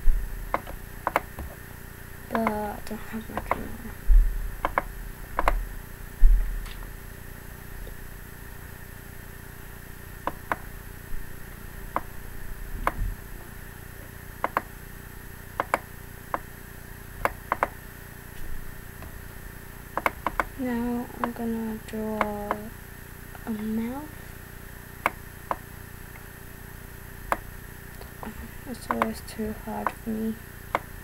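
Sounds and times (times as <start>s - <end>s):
faint steady hum: 0.0s - 31.0s
low thumps: 2.4s - 7.1s, 10.2s - 13.6s
computer mouse button clicks: 15.6s - 15.8s.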